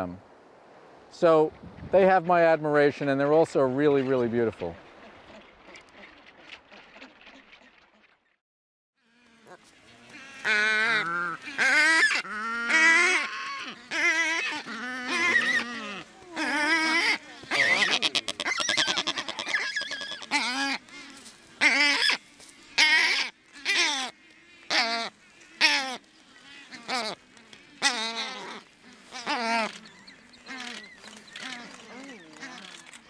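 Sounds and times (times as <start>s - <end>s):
albatrosses honking calls: 9.1s - 33.0s.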